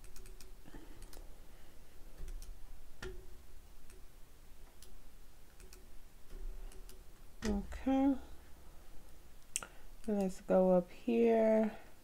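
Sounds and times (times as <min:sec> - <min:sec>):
computer mouse clicks: 0:00.0 - 0:01.2, 0:02.2 - 0:04.0, 0:04.7 - 0:07.6.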